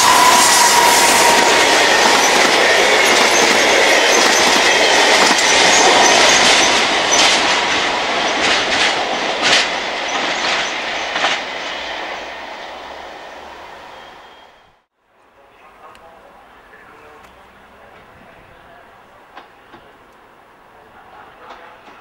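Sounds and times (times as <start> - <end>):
train wheels clattering over joints: 1.2 - 11.6.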